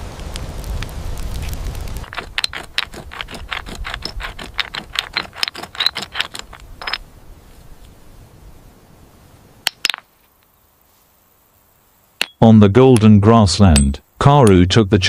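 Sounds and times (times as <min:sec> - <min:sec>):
rain rumble: 0:00.0 - 0:10.4
campfire crackling: 0:00.0 - 0:13.3
stone striking stone clicks: 0:02.0 - 0:07.0, 0:09.6 - 0:10.1, 0:12.2 - 0:14.6.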